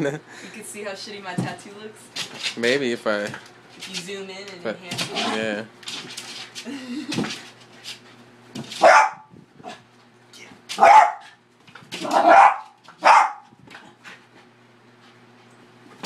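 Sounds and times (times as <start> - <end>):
small dog barking sharply: 8.8 - 9.3, 10.8 - 11.3, 12.0 - 13.5.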